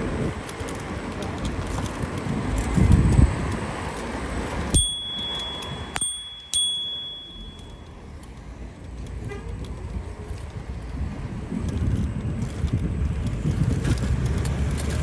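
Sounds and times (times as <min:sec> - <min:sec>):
wind and road noise: 0:00.0 - 0:15.0
bicycle bell dings: 0:04.7 - 0:08.0.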